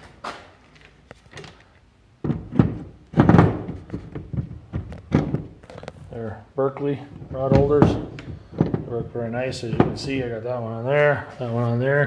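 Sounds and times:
plastic clunks and knocks: 2.2s - 6.1s, 7.1s - 10.3s.

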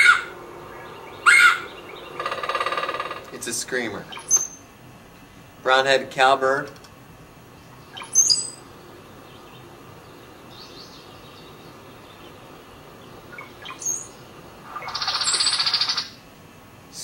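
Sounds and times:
bird song with high whistles: 7.9s - 8.6s.

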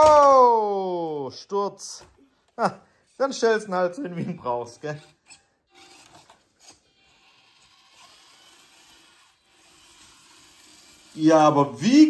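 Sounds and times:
small electric motor whirring: 5.3s - 11.8s.

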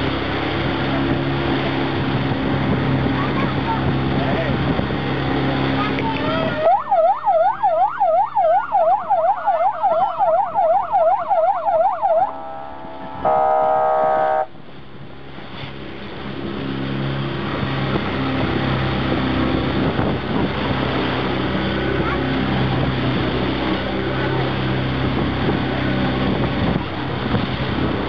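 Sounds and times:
motorboat engine running: 0.0s - 28.0s
rushing water: 0.0s - 28.0s
electronic siren yelp: 6.4s - 14.5s
steady horn tone: 11.6s - 14.6s.

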